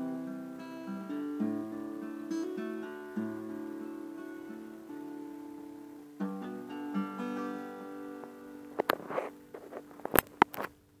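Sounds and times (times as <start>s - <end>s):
acoustic guitar chord ringing: 0.0s - 10.5s
brief rustle: 8.7s - 10.8s.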